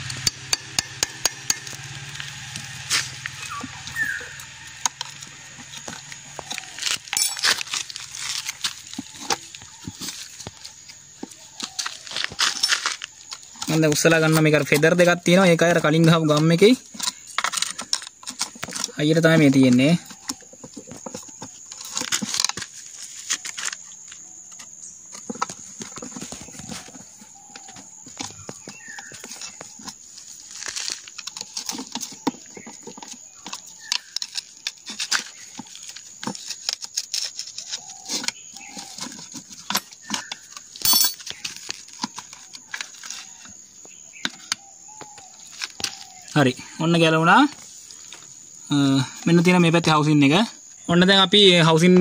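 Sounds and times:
metal parts clicking and knocking: 4.8s - 10.3s, 38.2s - 43.2s.

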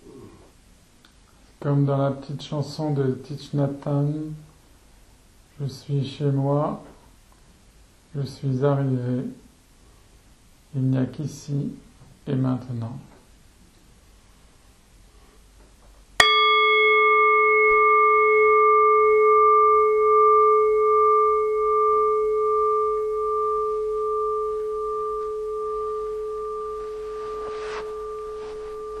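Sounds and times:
meditation bell ringing: 16.2s - 29.0s.

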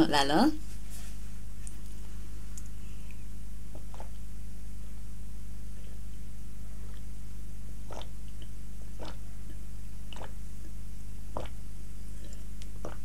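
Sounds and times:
steady low hum: 0.0s - 13.0s
person gulping a drink: 3.8s - 4.2s, 7.8s - 11.6s, 12.2s - 13.0s.

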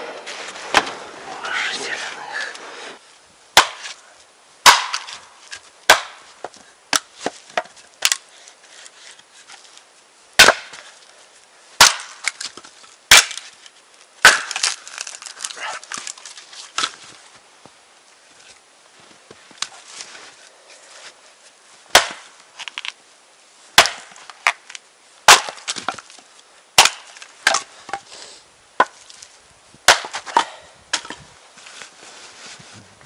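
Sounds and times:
axe chopping wood: 0.7s - 1.0s, 3.6s - 4.0s, 4.6s - 8.3s, 10.4s - 10.9s, 11.8s - 13.5s, 14.2s - 15.2s, 21.9s - 22.9s, 23.8s - 24.7s, 25.3s - 26.0s, 26.8s - 28.0s, 29.8s - 31.2s
wood cracking as it splits: 4.6s - 8.2s, 11.8s - 17.1s, 21.9s - 23.0s, 23.8s - 26.2s, 26.8s - 27.7s.

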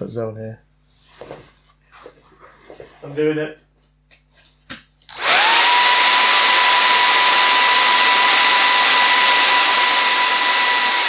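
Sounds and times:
hair dryer motor whine: 5.1s - 11.0s.

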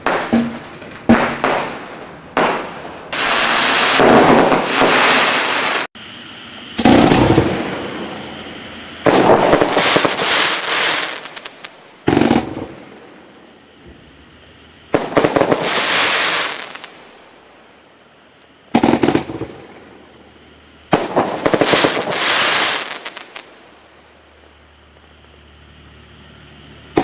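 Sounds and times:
rapid firework pops: 0.0s - 5.8s, 9.1s - 12.8s, 15.0s - 16.9s, 18.7s - 19.8s, 20.9s - 23.5s
firework bangs: 0.0s - 5.9s, 6.8s - 17.2s, 18.7s - 20.3s, 20.9s - 23.7s
firework hissing: 0.0s - 13.4s, 14.0s - 17.2s, 20.9s - 24.0s.

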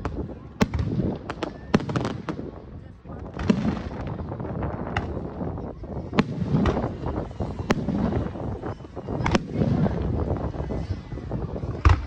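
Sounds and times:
fireworks bangs: 0.0s - 12.0s
wind on microphone: 0.0s - 12.0s.

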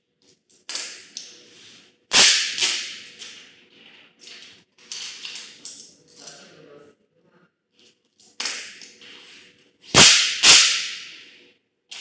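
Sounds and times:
sharp loud snap: 2.1s - 3.0s, 10.0s - 11.2s.

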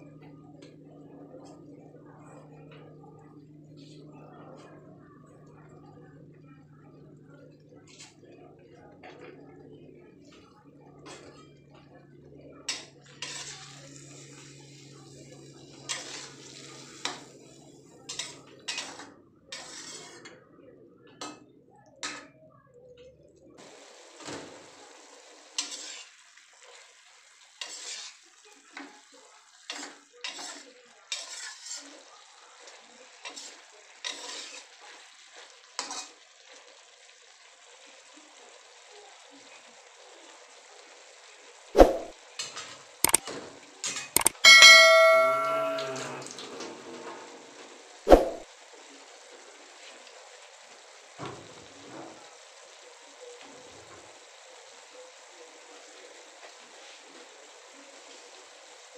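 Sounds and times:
metal spatula scraping wok: 13.2s - 13.8s, 18.2s - 20.2s, 25.6s - 26.1s, 27.6s - 28.2s, 30.3s - 31.8s.

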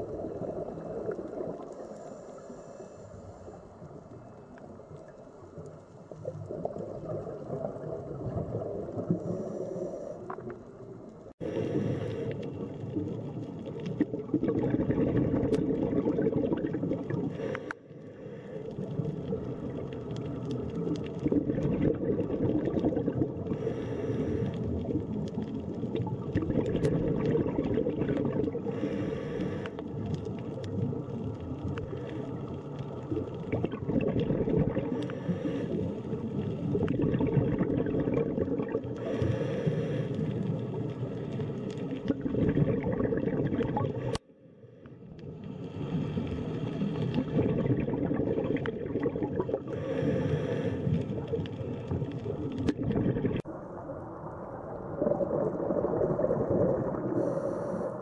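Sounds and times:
bubbling rumble of exhaled air: 0.0s - 44.2s, 45.0s - 58.0s
breath hiss through regulator: 9.1s - 10.5s, 11.4s - 12.7s, 17.2s - 19.0s, 23.4s - 24.9s, 28.6s - 29.8s, 34.8s - 36.6s, 39.0s - 42.1s, 49.6s - 51.4s, 57.1s - 58.0s.

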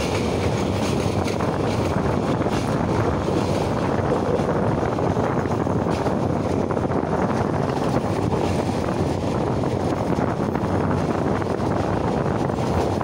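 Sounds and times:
train wheels rumbling on rails: 0.0s - 13.0s
wind buffeting microphone: 0.0s - 13.0s.

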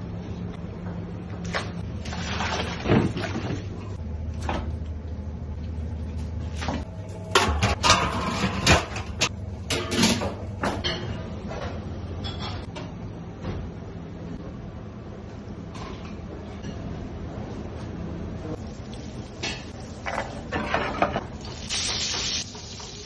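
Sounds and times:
steady low hum: 0.0s - 21.5s
steel cookware clanking: 7.3s - 11.1s.

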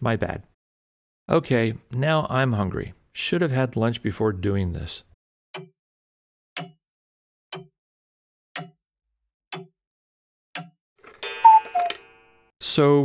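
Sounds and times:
clock ticking: 6.6s - 6.8s, 7.5s - 7.7s, 8.6s - 8.8s, 9.5s - 9.7s, 10.6s - 10.8s.

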